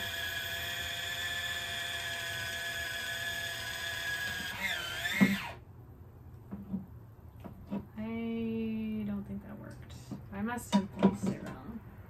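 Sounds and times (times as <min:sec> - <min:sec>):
electric can opener whine: 0:00.0 - 0:05.6.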